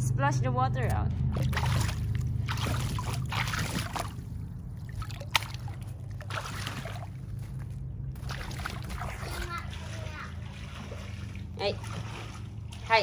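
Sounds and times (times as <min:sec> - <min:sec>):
steady low hum: 0:00.0 - 0:13.0
water sloshing and splashing: 0:00.7 - 0:13.0.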